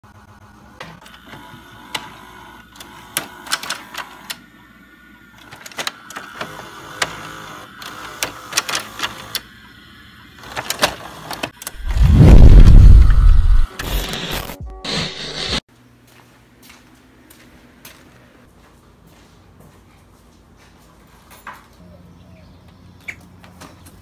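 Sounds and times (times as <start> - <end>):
tape mechanism clicking and whirring: 0.1 - 15.6
loud deep boom: 11.8 - 13.7.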